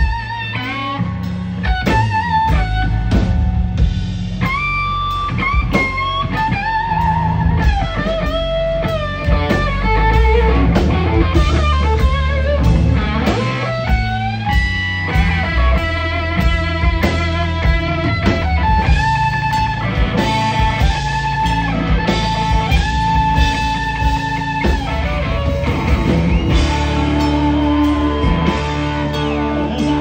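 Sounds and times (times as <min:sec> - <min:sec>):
drums: 0:00.0 - 0:30.0
electric bass: 0:00.0 - 0:30.0
electric guitar solo: 0:00.0 - 0:30.0.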